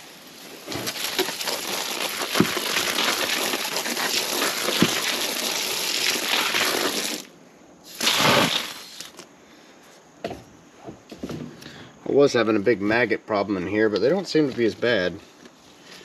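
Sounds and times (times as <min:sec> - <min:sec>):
hose spraying water onto sand: 0:00.0 - 0:09.2.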